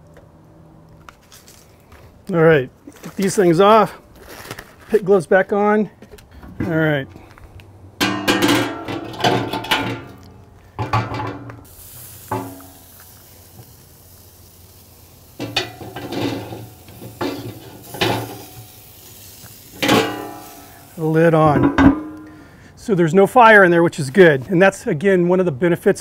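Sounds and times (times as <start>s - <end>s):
metal clanks and rings: 19.8s - 20.8s, 21.5s - 22.4s.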